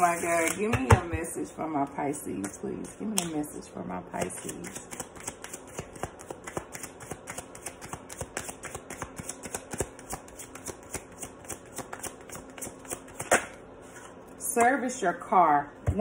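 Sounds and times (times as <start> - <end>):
cards being shuffled by hand: 4.2 - 13.6.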